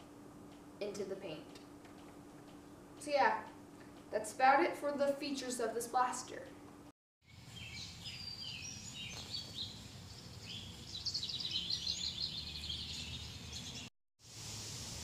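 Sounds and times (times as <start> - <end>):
low background hum: 0.0 - 13.8
bird trill: 7.3 - 13.9
songbirds chirping: 7.3 - 13.9.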